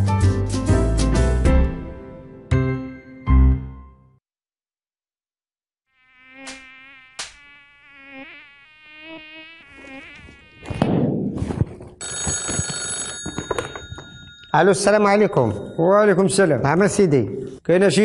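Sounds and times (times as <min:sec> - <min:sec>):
telephone ringing: 0:12.0 - 0:15.8.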